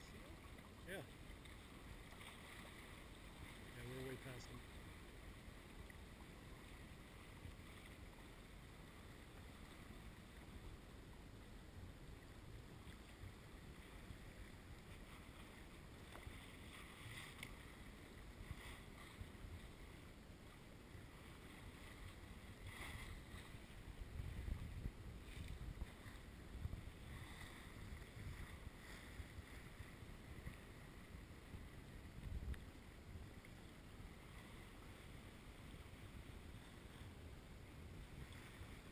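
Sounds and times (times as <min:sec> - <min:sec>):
water swishes: 0:00.0 - 0:38.9
wind buffeting microphone: 0:23.2 - 0:29.6.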